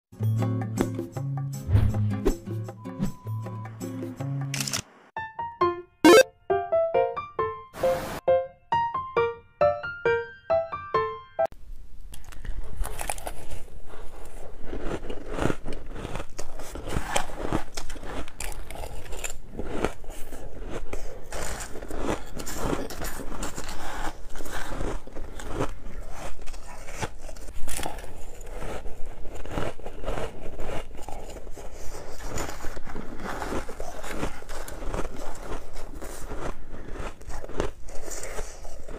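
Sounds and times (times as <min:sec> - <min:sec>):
spoon scraping crushed ice: 0:12.8 - 0:38.9.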